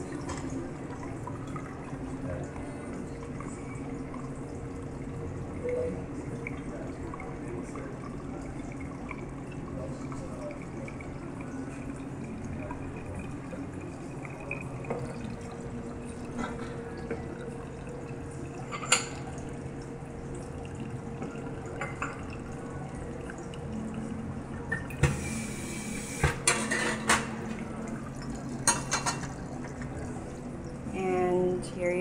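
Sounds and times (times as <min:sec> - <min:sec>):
coffee dripping through filter: 0:00.0 - 0:32.0.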